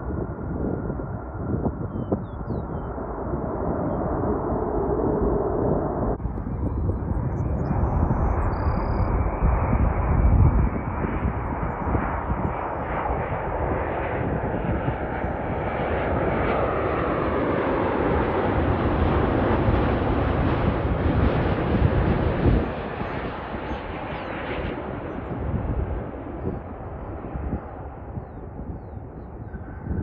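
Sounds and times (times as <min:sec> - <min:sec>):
jet engines roaring: 0:00.0 - 0:30.0.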